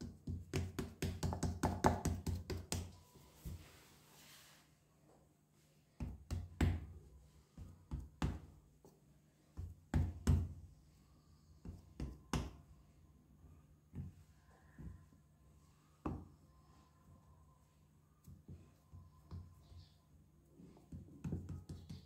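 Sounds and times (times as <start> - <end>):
hands slapping damp clay: 0.0 - 3.0.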